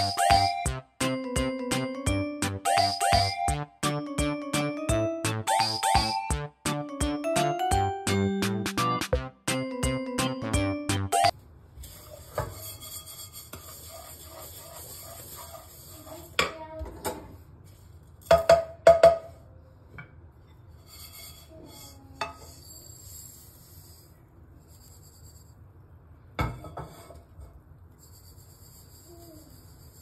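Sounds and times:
spatula scraping nonstick pan: 11.9 - 16.4.

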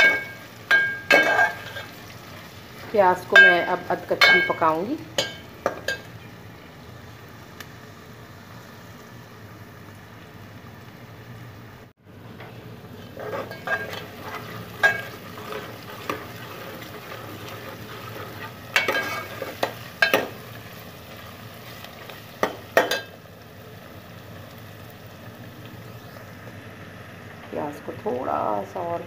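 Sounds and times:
ladle scraping and clinking pot: 0.0 - 2.0, 12.4 - 20.4
onions sizzling in oil: 0.0 - 29.0.

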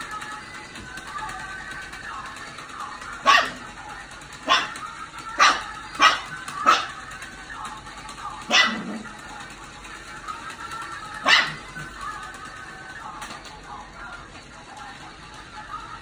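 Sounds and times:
puppy barking: 3.1 - 3.7, 4.4 - 4.8, 5.4 - 7.1, 8.4 - 9.0, 11.2 - 11.9.

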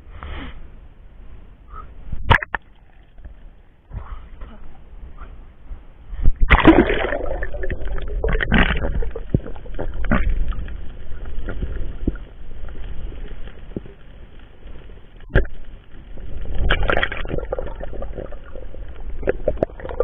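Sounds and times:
water sloshing and bubbling: 6.1 - 20.0.

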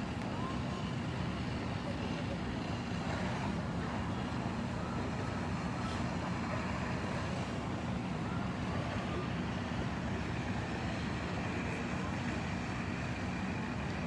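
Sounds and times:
fire truck engine humming: 0.0 - 14.0.

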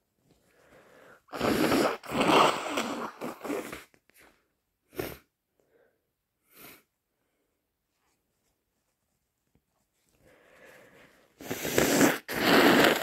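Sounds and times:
person blowing nose: 1.2 - 4.0, 4.9 - 5.3, 11.4 - 13.0.

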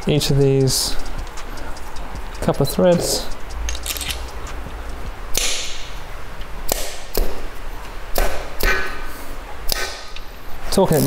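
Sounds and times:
socket wrench clacking on bolts: 3.7 - 4.3.

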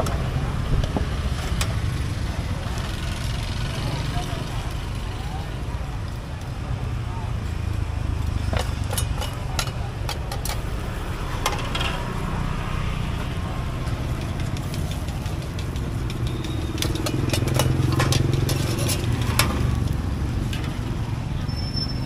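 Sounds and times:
traffic rumble: 0.0 - 22.0
motorcycle engine: 7.3 - 21.5
metal spatula scraping wok: 8.5 - 12.3, 13.7 - 20.8.

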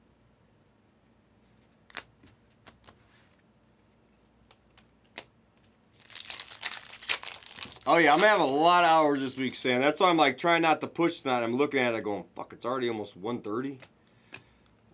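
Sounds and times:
trading cards clicking and tapping: 13.7 - 14.5.

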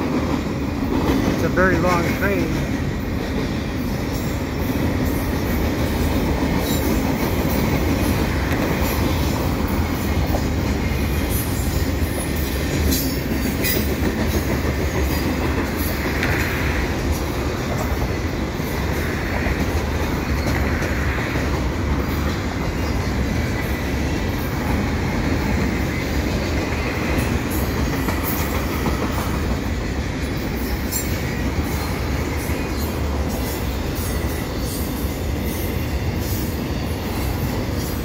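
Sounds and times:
freight train rolling over bridge: 0.0 - 38.0
train wheel clicks: 4.8 - 23.7, 26.2 - 29.6.

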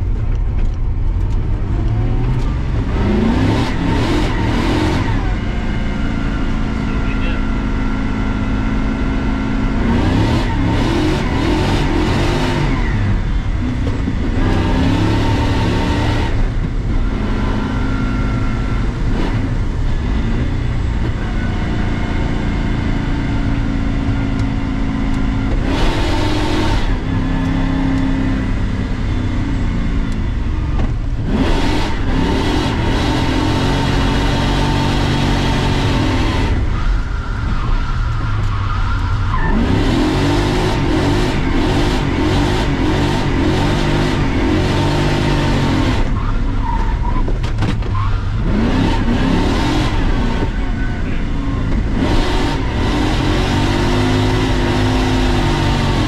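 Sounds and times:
car engine revving from inside: 31.2 - 36.7, 39.5 - 46.2, 51.7 - 56.0.

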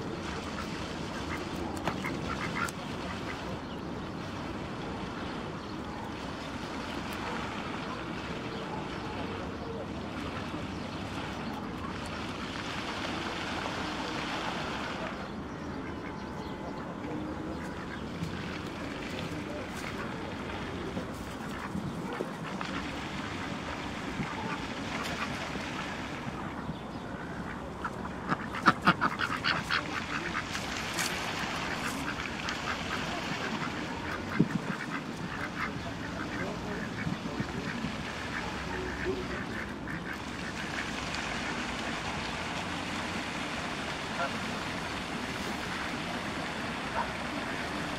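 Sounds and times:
duck quacking: 27.8 - 31.1
wind noise on microphone: 34.2 - 35.3.

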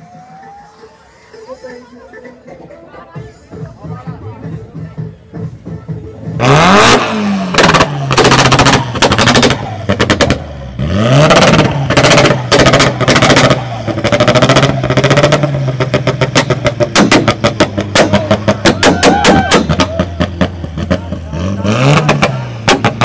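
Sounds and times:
car engine revving over idle: 5.6 - 23.0
loud exhaust bangs: 6.3 - 23.0.

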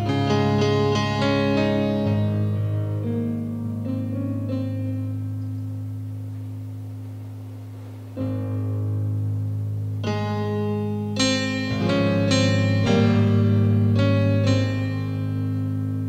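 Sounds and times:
keyboard piano chords: 0.0 - 16.0.

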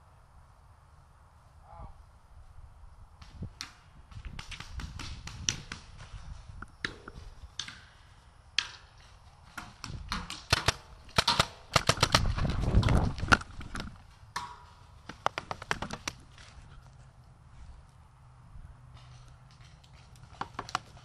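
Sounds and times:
paintball markers firing: 3.2 - 6.2, 9.6 - 16.2, 20.3 - 21.0.

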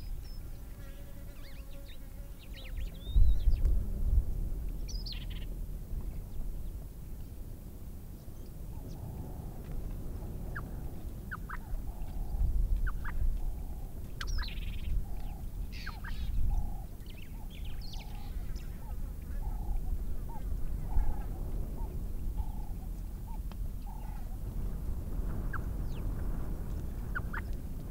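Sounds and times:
birds chirping and whistling: 2.5 - 3.7, 4.8 - 5.5, 10.5 - 24.4, 27.0 - 27.6
steady low rumble: 2.6 - 27.9.

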